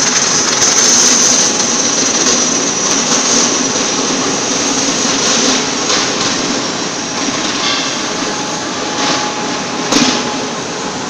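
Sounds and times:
electric motor and gearbox running: 0.0 - 6.0
high motor whine: 0.0 - 11.0.

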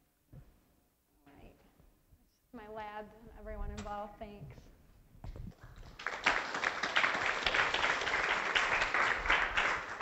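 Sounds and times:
audience applauding: 5.6 - 10.0.

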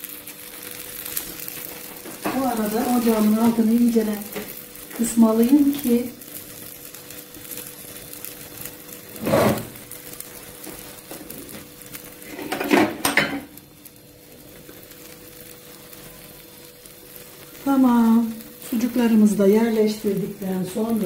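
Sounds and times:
omelette sizzling in a pan: 0.0 - 21.0
kitchenware clattering: 12.3 - 13.5.

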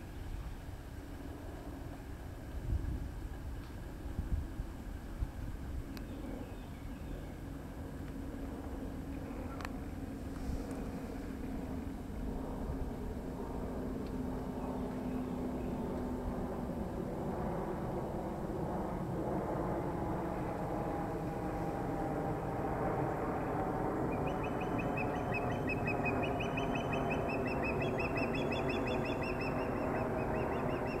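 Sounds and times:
birds calling: 24.1 - 31.0.

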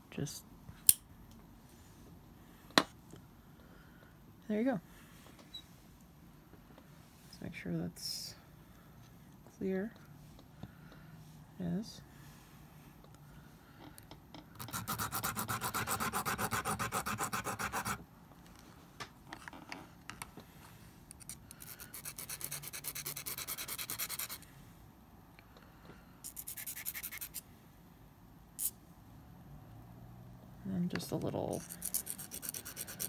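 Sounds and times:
nail file rasping on shell: 14.6 - 18.0, 21.1 - 24.4, 26.2 - 27.4, 31.6 - 33.0.

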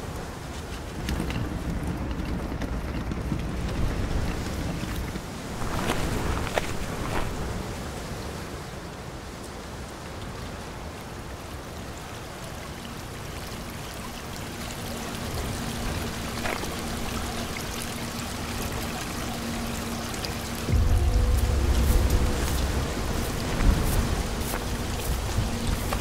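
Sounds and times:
heavy rain pouring: 0.0 - 26.0
faint low tone: 20.7 - 26.0.

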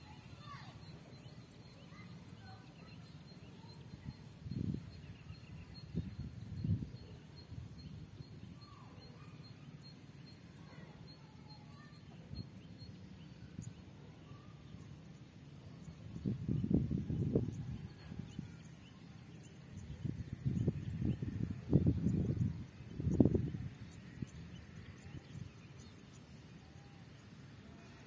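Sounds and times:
faint high repeating chirp: 0.0 - 14.9
faint bird chirps: 0.0 - 28.0
wind rumble on microphone: 4.3 - 8.2, 16.1 - 18.7, 19.8 - 25.6.

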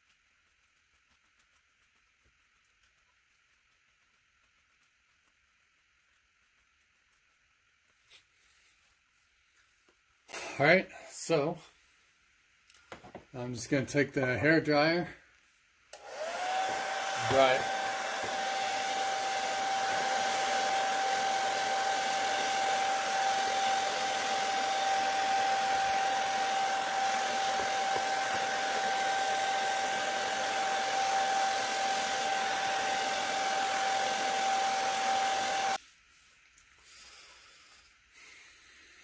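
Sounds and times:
hair dryer running: 15.9 - 35.8.

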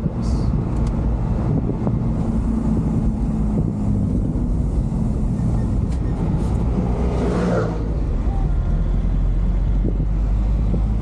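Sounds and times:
truck engine running: 0.0 - 7.1
road and wind noise: 0.0 - 11.0.

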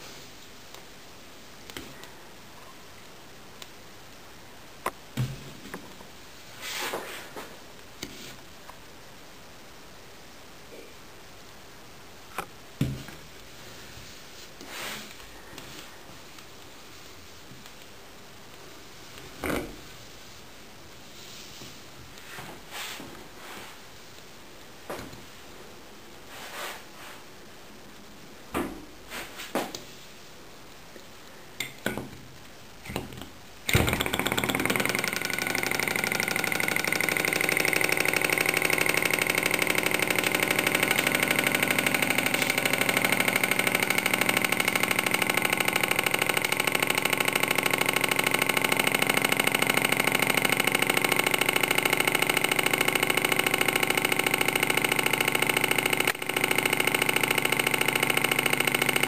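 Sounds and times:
model engine clattering: 33.7 - 59.0.

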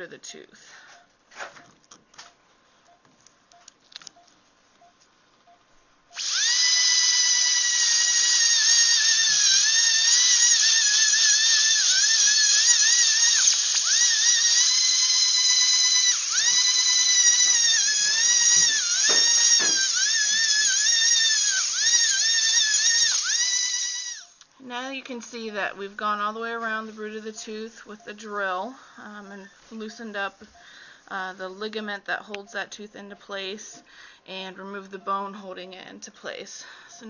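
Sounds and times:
high-pitched dental drill whining: 6.1 - 24.5, 25.3 - 33.9.

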